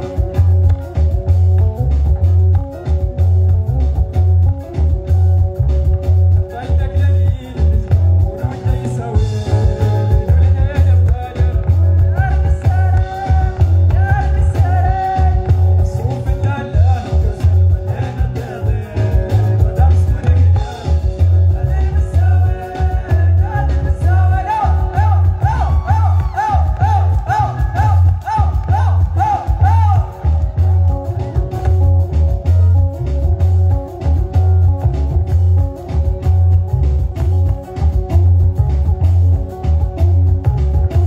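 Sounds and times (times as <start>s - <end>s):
live rock band playing: 0.0s - 41.0s
person singing: 6.4s - 31.9s.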